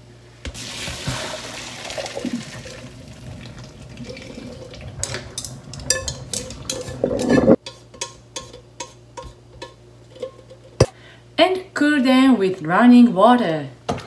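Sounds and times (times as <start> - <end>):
water draining into a sink: 0.6 - 5.4
chopsticks scraping a pot: 5.4 - 10.8.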